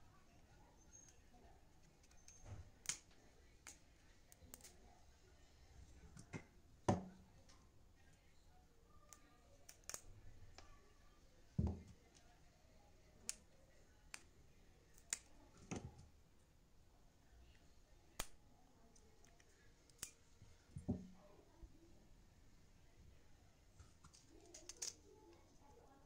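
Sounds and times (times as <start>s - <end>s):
small sharp metal clicks: 24.0s - 25.2s.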